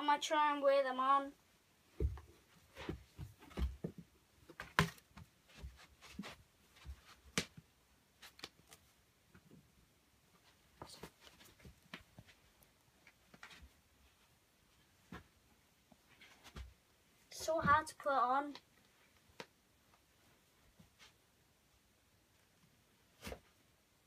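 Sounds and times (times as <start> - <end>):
football boot knocks and rustles: 1.9 - 7.6.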